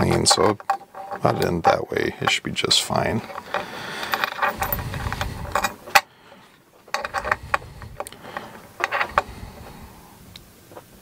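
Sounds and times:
small metal parts clicking: 0:00.0 - 0:02.4, 0:03.1 - 0:06.1, 0:06.9 - 0:09.3.

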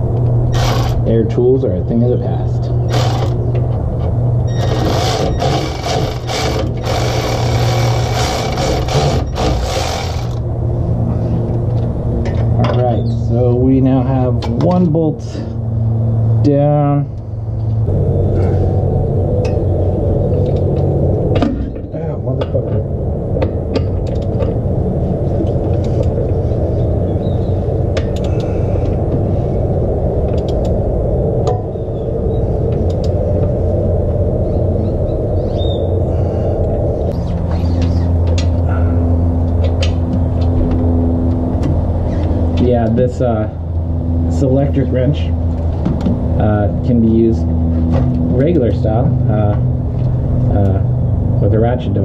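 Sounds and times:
low rumble: 0:00.0 - 0:52.0
electric ratchet running: 0:00.5 - 0:01.1, 0:02.9 - 0:03.4, 0:04.5 - 0:10.4.

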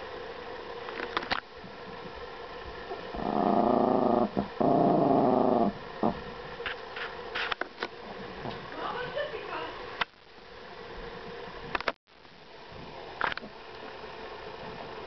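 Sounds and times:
dog growling: 0:03.1 - 0:06.2.

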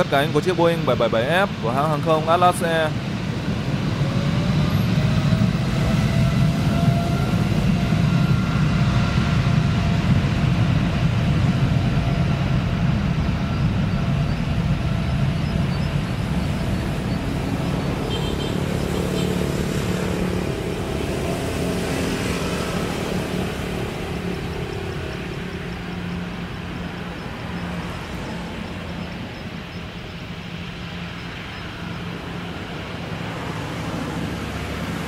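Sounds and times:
jet engines rumbling and whining: 0:00.0 - 0:35.0.

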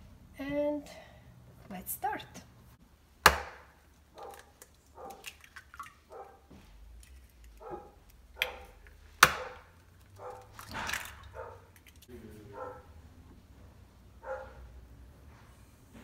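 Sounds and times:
egg shell cracking on bowl rim: 0:10.6 - 0:12.0.

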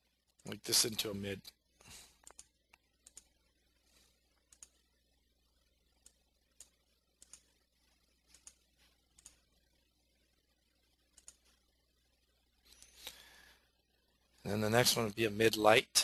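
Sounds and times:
faint computer clicks: 0:02.2 - 0:03.4, 0:04.4 - 0:04.8, 0:06.0 - 0:07.5, 0:08.3 - 0:09.4, 0:11.1 - 0:11.5.

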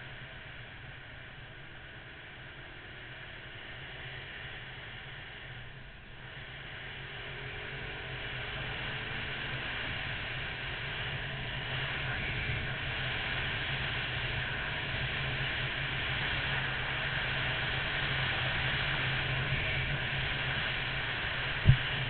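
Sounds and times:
motorcycle engine cruising: 0:06.3 - 0:22.0
wind rushing over microphone: 0:17.8 - 0:22.0.

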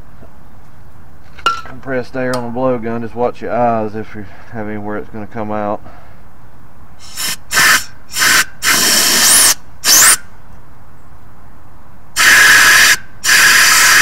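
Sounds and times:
compressed air blasts hissing: 0:07.0 - 0:10.3, 0:12.2 - 0:14.0
rising air whistle: 0:07.0 - 0:10.3, 0:12.2 - 0:14.0.

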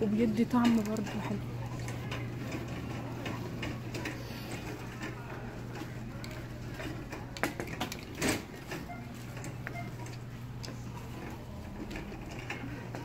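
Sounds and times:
shopping cart rattling: 0:00.0 - 0:13.0.

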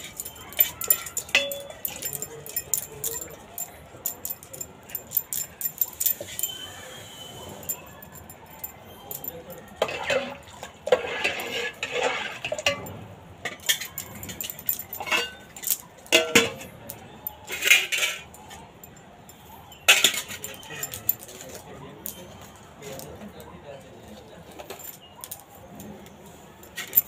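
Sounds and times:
steel pot clinking on hard surface: 0:00.0 - 0:06.7, 0:07.6 - 0:21.5
bangles jingling: 0:00.0 - 0:10.4, 0:11.0 - 0:23.1, 0:24.5 - 0:27.0.

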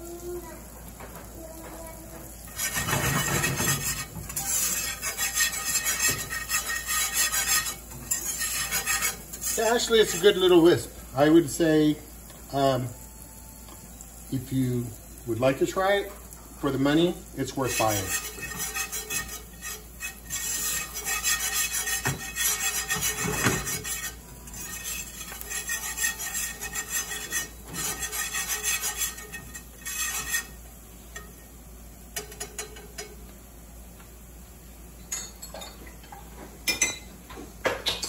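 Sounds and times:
metal whisk stirring in skillet: 0:02.3 - 0:11.6, 0:15.3 - 0:31.4.

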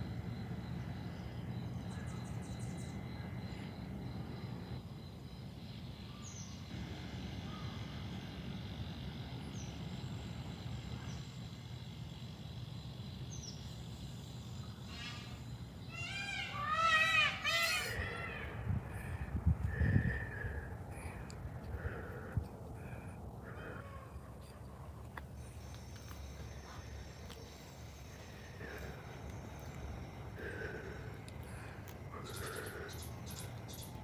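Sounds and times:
faint bird chirps: 0:00.0 - 0:06.7
low background rumble: 0:00.0 - 0:34.0
peafowl calling: 0:14.8 - 0:22.2.

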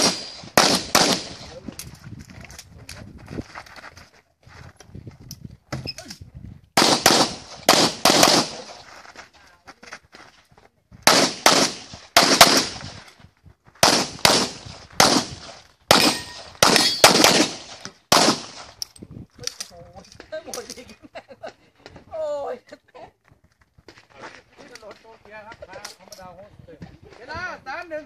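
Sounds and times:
handgun shots: 0:13.8 - 0:18.5.

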